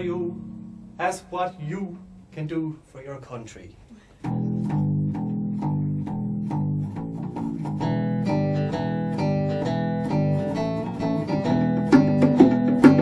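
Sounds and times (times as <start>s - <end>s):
bass guitar: 0.0s - 2.3s, 4.2s - 13.0s
higher instruments: 0.0s - 3.2s
acoustic guitar: 4.0s - 13.0s
light percussion: 10.1s - 13.0s.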